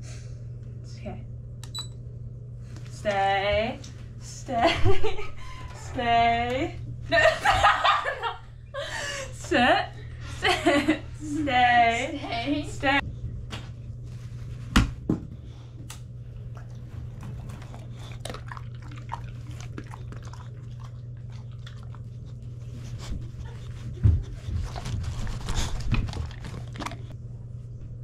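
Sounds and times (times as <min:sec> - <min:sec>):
steady low hum: 0:00.0 - 0:28.0
dog chewing crunchy food: 0:16.5 - 0:22.8, 0:24.3 - 0:27.2.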